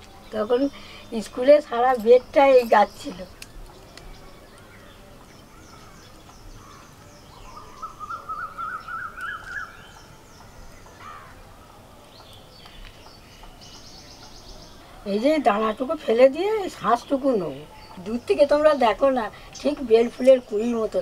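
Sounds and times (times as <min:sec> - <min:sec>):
faint bird chirps: 0:00.0 - 0:20.6
bird calling rising notes: 0:03.3 - 0:14.8.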